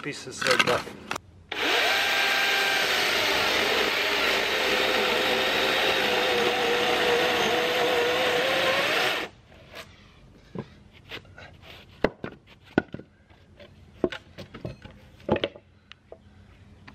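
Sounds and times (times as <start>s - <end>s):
chainsaw cutting wood: 1.5s - 9.3s.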